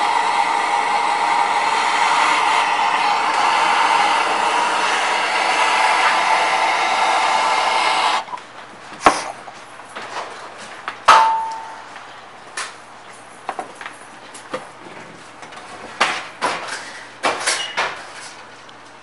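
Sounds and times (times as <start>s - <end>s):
gas torch flame hissing: 0.0s - 8.4s
metal clank: 11.1s - 11.8s.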